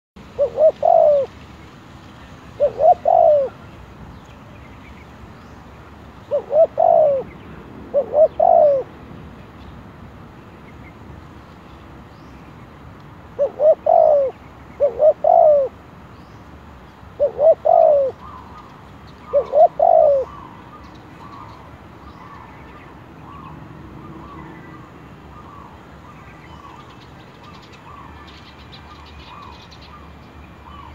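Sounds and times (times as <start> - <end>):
dove cooing: 0.3 - 1.3, 2.6 - 3.6, 6.3 - 8.9, 13.4 - 15.8, 17.2 - 20.6.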